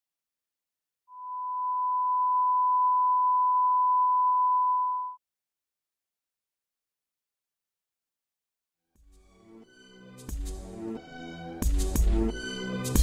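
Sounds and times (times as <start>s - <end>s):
steady electronic beep: 1.2s - 5.2s.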